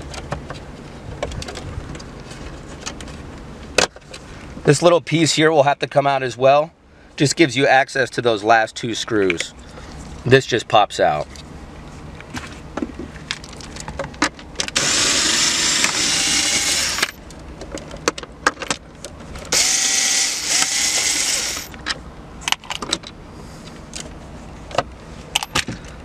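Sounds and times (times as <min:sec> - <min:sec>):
cordless drill running: 0:14.8 - 0:17.2, 0:19.5 - 0:21.7.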